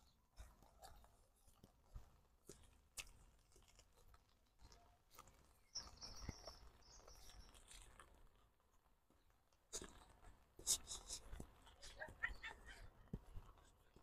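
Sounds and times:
faint high-pitched chirping: 4.6 - 7.8.

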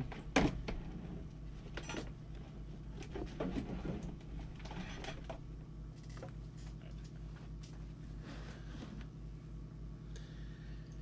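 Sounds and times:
equipment knocks and scrapes: 0.0 - 5.4
low electrical hum: 0.0 - 11.0.

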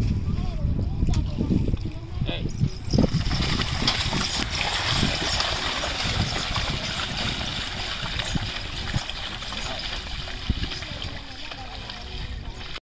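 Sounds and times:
hooves splashing through mud: 2.8 - 12.8.

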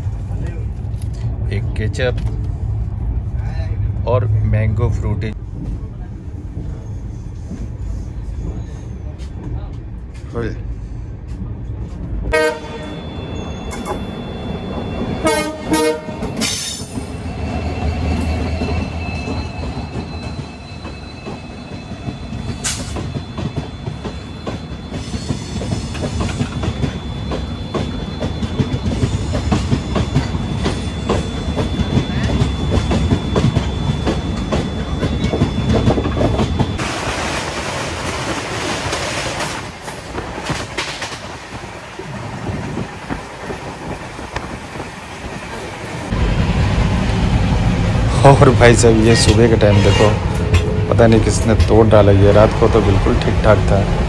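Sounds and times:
train horn: 12.3 - 13.1, 15.2 - 16.5
train wheels clattering on track: 15.0 - 17.4, 18.1 - 46.1, 48.2 - 54.0.

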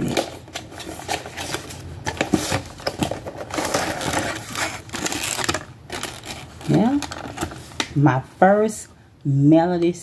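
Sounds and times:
cardboard box and plastic rustling: 0.0 - 7.9.

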